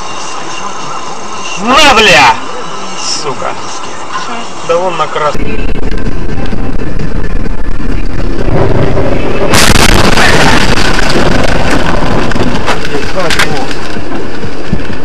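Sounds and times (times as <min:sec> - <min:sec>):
road and vehicle rumble: 0:00.0 - 0:15.0
car crash impact: 0:08.4 - 0:15.0
sharp crash knocks: 0:08.4 - 0:15.0.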